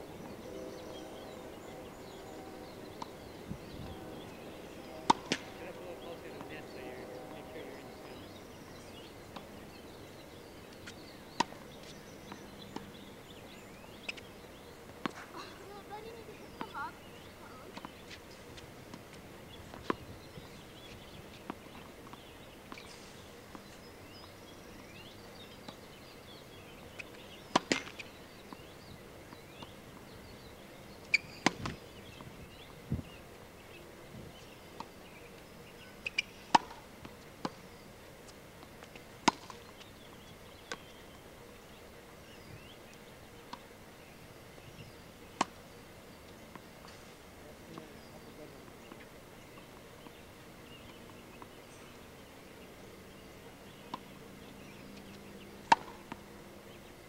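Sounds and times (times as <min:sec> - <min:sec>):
tennis ball bouncing on court: 0:05.0 - 0:05.6, 0:15.0 - 0:15.2, 0:16.0 - 0:16.8, 0:17.7 - 0:20.0, 0:27.0 - 0:28.7, 0:36.0 - 0:37.6, 0:38.8 - 0:39.8, 0:45.4 - 0:45.6, 0:55.6 - 0:56.2
racket hitting tennis ball: 0:05.0 - 0:06.5, 0:27.5 - 0:28.0, 0:36.0 - 0:36.8, 0:38.8 - 0:39.6, 0:55.6 - 0:56.2.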